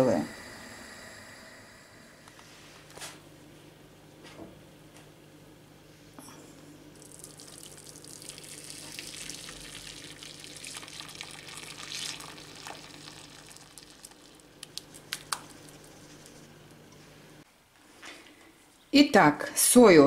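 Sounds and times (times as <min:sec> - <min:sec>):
liquid pouring and splashing: 0:07.0 - 0:15.9.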